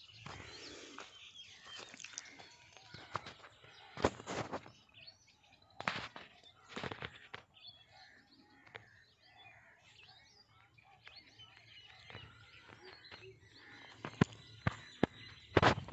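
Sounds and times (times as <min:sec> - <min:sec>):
small birds chirping: 0:00.0 - 0:15.9.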